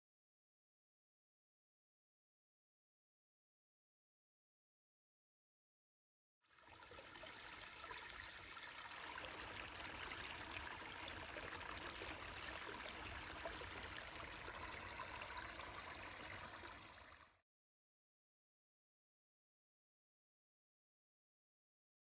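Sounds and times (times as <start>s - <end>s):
stream trickling and splashing: 6.4s - 17.4s.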